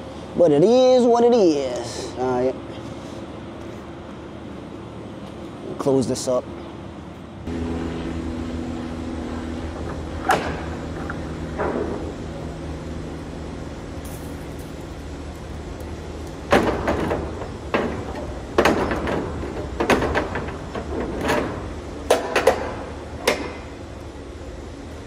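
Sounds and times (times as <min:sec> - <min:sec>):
steady low hum: 0:00.0 - 0:25.0
metal doors clanking shut: 0:09.8 - 0:12.2, 0:16.5 - 0:23.6.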